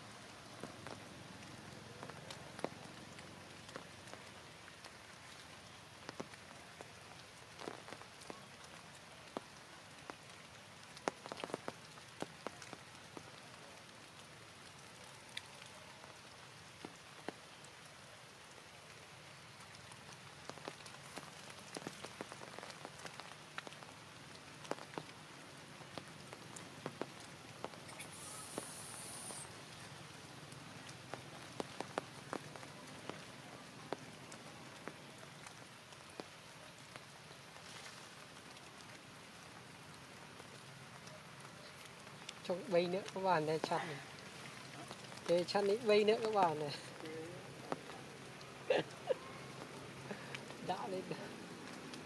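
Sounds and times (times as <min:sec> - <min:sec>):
rain falling: 0:00.0 - 0:52.0
raindrop hits: 0:00.0 - 0:52.0
high hiss: 0:27.8 - 0:29.9.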